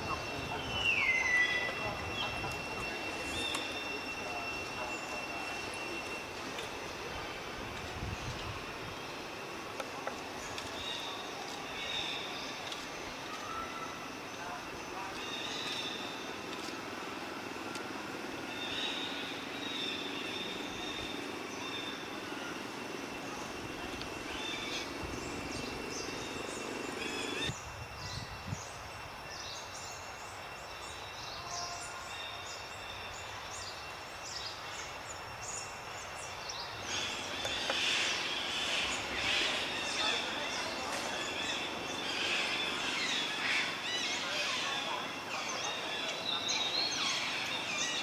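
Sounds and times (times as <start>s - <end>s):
birds chirping: 0.0s - 48.0s
insect drone: 0.0s - 48.0s.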